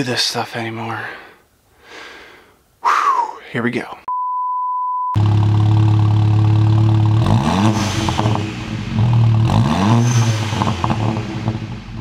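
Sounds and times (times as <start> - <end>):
car engine idling and revving: 5.2 - 12.0.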